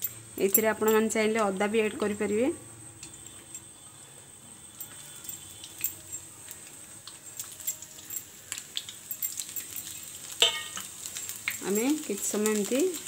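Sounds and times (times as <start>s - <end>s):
garlic frying in oil: 0.0s - 13.0s.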